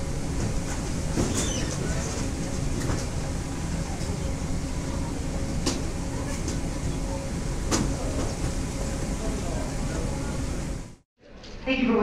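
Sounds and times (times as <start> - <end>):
baggage carousel rumbling: 0.0 - 10.9.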